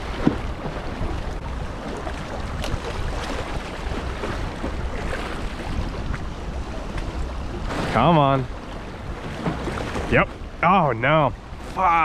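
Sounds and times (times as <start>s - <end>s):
wind buffeting microphone: 0.0s - 10.7s
waves splashing on rocks: 6.8s - 12.0s.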